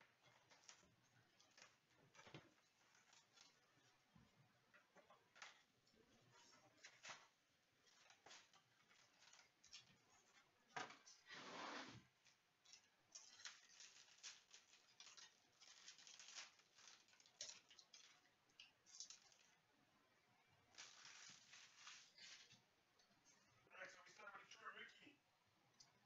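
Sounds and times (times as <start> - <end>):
foil wrapper crinkling: 12.7 - 19.5, 20.7 - 22.6.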